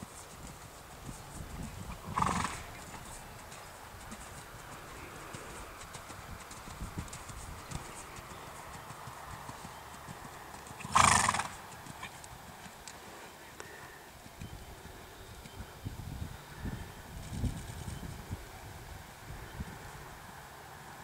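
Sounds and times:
hoofbeats on sand: 0.0s - 13.0s
horse snorting: 2.0s - 3.1s, 10.8s - 12.2s.

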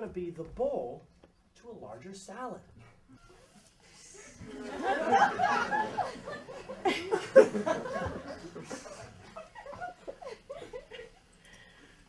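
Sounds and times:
audience laughing: 4.3s - 11.2s.

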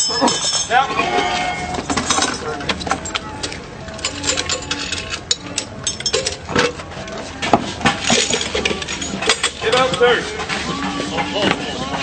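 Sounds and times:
crowd voices: 0.0s - 4.9s, 8.3s - 12.0s
metal parts and tools clanking: 0.0s - 12.0s.

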